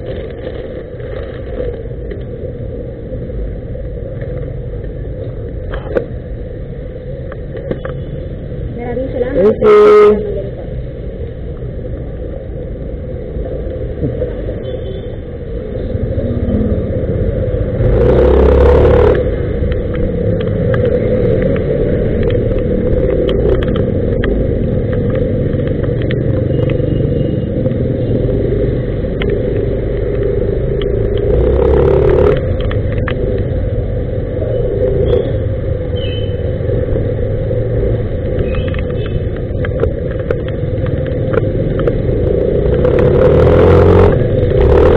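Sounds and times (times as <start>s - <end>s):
wet road noise: 0.0s - 44.9s
rushes of noise: 13.0s - 44.9s
motor scooter engine: 17.9s - 19.3s, 31.1s - 32.7s, 42.0s - 44.9s.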